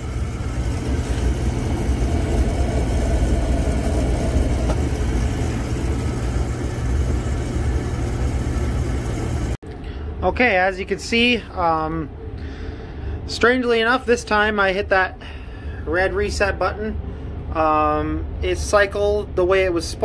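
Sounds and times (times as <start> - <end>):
oil burner running: 0.0 - 10.0.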